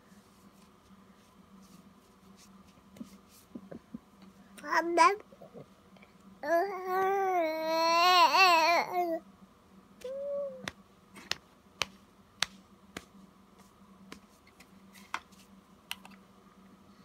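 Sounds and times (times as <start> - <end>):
baby humming softly: 6.4 - 9.2, 10.0 - 10.7.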